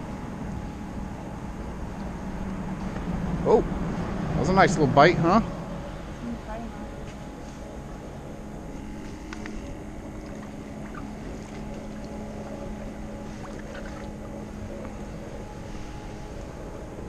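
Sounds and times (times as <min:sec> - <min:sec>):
motor humming: 0:00.0 - 0:17.0.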